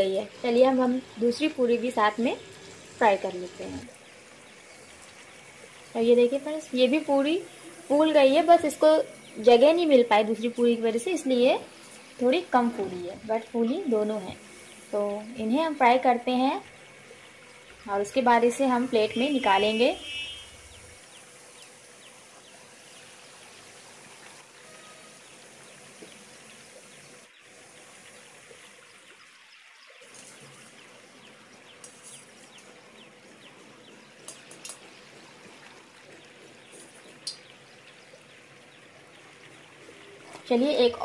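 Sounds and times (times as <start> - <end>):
food deep-frying in oil: 0.0 - 41.0
small crackles of oil: 28.4 - 40.7.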